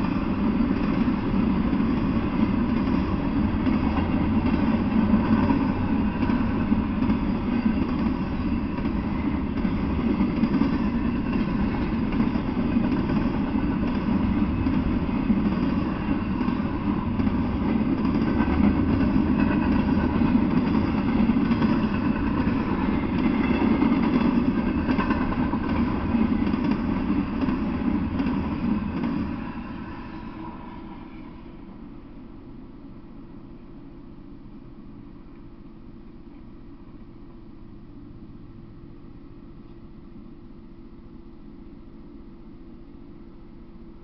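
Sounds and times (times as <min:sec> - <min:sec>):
train wheels rumbling on rails: 0:00.0 - 0:33.6.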